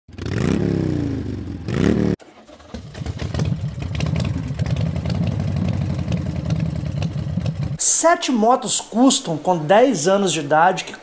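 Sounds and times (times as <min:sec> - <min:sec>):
motorcycle engine revving: 0:00.1 - 0:07.8
motorcycle engine idling unevenly: 0:01.2 - 0:07.8.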